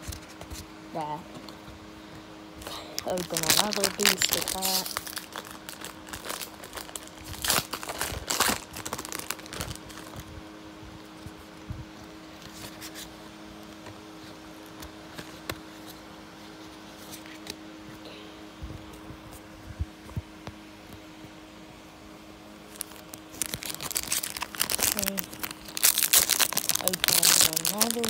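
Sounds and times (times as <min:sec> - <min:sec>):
steady low hum: 0:00.0 - 0:28.0
foil wrapper crinkling and tearing: 0:02.6 - 0:10.3, 0:22.7 - 0:28.0.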